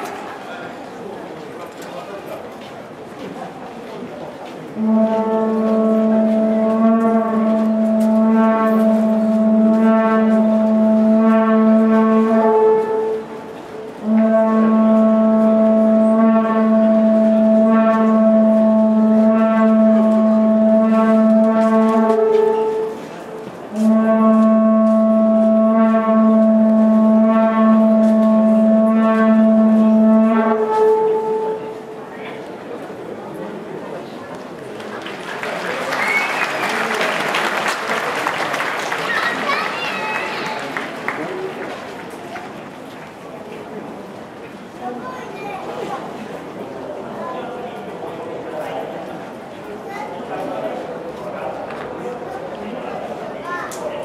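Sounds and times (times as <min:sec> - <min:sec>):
conch-shell trumpet blasts: 0:04.7 - 0:32.0.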